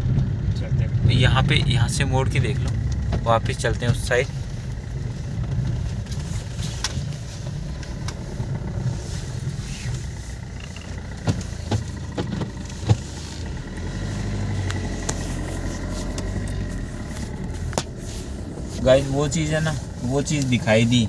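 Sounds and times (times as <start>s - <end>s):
car engine rumbling: 0.0s - 21.0s
sharp clicks and knocks: 9.9s - 13.2s.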